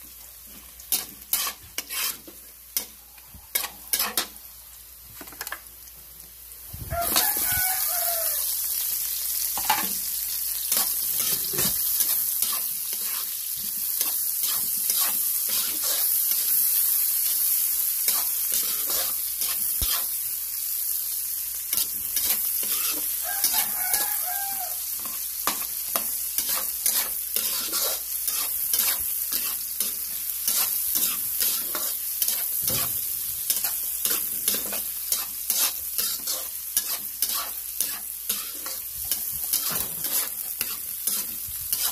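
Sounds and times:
food sizzling in pan: 0:00.0 - 0:41.9
utensil scraping pan: 0:00.9 - 0:02.9, 0:03.5 - 0:04.4, 0:25.0 - 0:41.9
rooster crowing: 0:06.8 - 0:08.7, 0:23.2 - 0:25.0.

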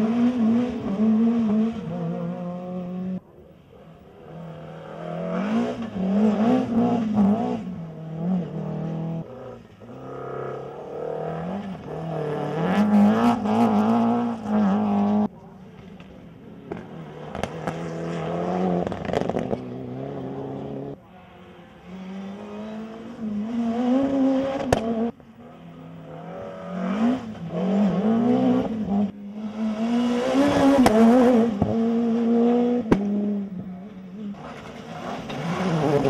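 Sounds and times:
rally car engines revving: 0:00.0 - 0:36.0.

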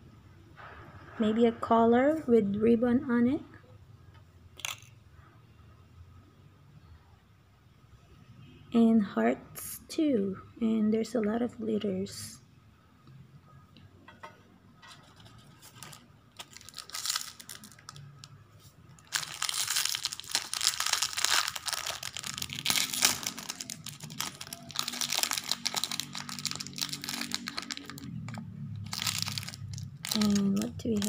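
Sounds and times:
plastic wrapper crinkling and tearing: 0:15.0 - 0:31.0.

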